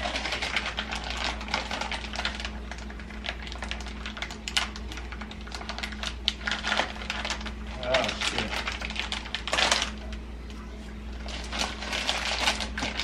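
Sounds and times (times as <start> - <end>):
saucepan crackling and popping: 0.0 - 13.0.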